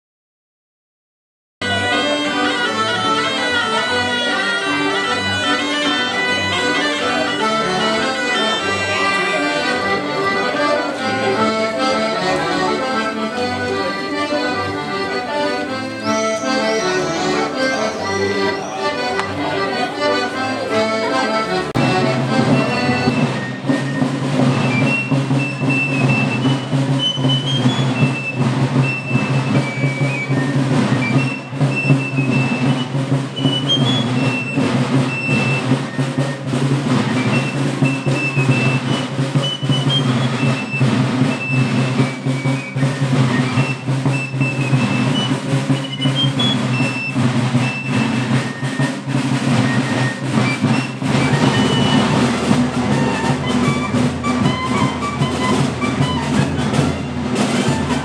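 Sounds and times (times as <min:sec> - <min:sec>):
accordion folk dance music: 0:01.6 - 0:58.0
low drone under shrill melody: 0:15.8 - 0:19.4.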